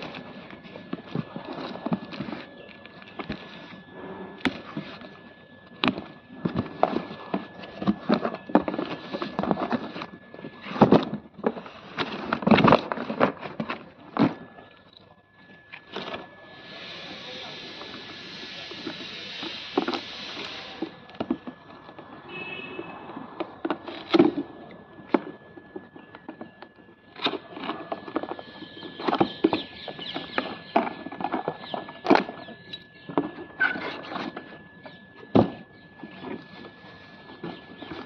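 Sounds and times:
cardboard and plastic rustling: 0.0 - 38.0
steady hiss: 16.7 - 20.9.

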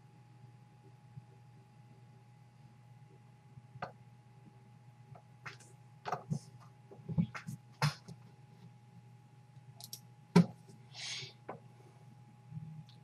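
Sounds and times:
low electrical hum: 0.0 - 13.0
small clicks and taps: 9.8 - 10.0.

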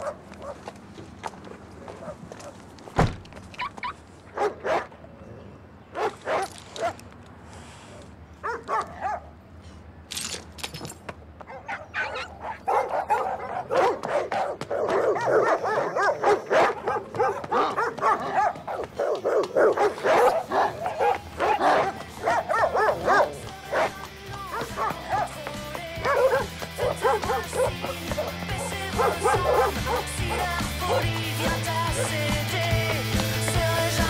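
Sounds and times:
dog barking: 0.0 - 0.6, 2.0 - 2.6, 4.3 - 4.9, 5.9 - 7.0, 8.4 - 9.4, 11.5 - 25.4, 26.0 - 31.2, 31.9 - 32.2
dog yelping and whining: 3.6 - 4.0, 11.6 - 13.7.

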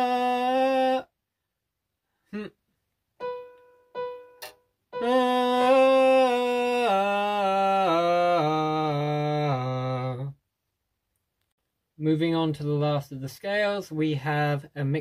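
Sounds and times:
person singing a scale: 0.0 - 1.1, 3.2 - 10.3
keyboard notes: 3.2 - 8.9.

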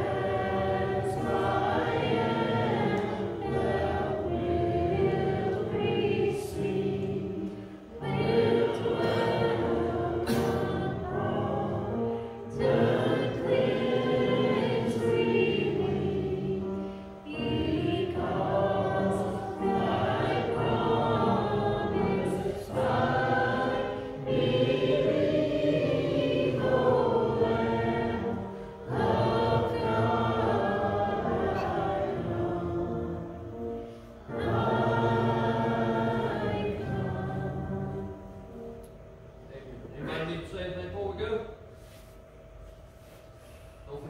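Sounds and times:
congregation singing a hymn: 0.0 - 40.5.

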